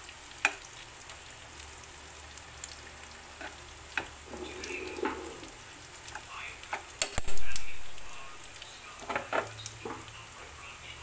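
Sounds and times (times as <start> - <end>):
meat and onions sizzling in a pan: 0.0 - 11.0
metal spoon stirring and scraping: 4.2 - 5.6.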